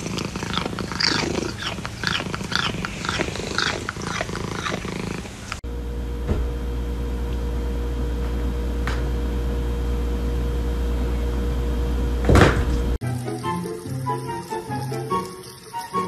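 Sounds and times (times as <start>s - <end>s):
low mechanical hum: 0.0s - 13.0s
loud clunk: 12.2s - 12.9s.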